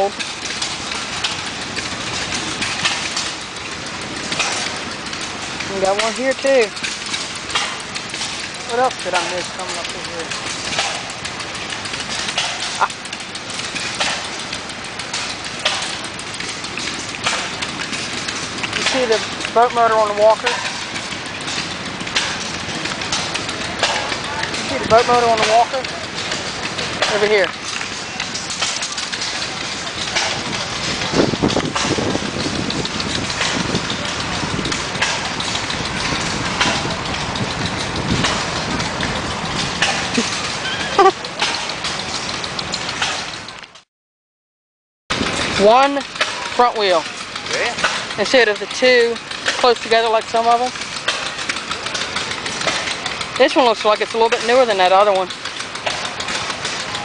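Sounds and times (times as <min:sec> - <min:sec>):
engines running: 0:00.0 - 0:43.8, 0:45.1 - 0:57.0
sharp engine pops: 0:06.8 - 0:19.5, 0:20.4 - 0:43.8, 0:50.6 - 0:53.4, 0:55.3 - 0:57.0.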